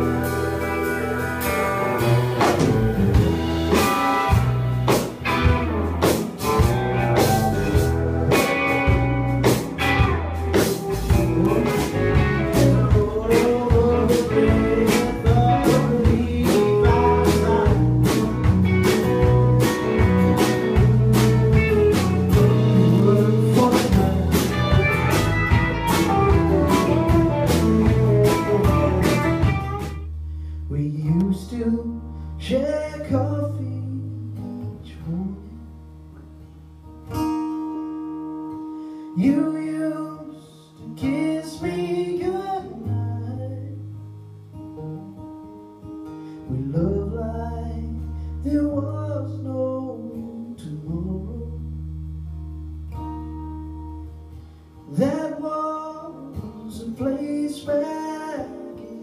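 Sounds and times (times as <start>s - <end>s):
live band playing: 0.0s - 30.6s
person singing: 6.0s - 29.8s.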